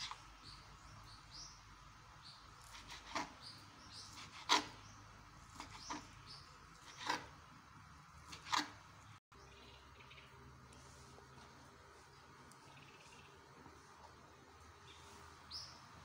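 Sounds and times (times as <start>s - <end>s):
knife chopping on cutting board: 8.3s - 8.7s.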